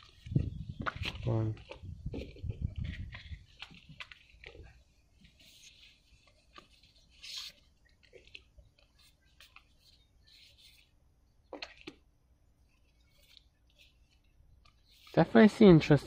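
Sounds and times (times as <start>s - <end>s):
card pieces rustling and sliding: 5.2s - 11.0s
card scraping: 5.3s - 10.9s.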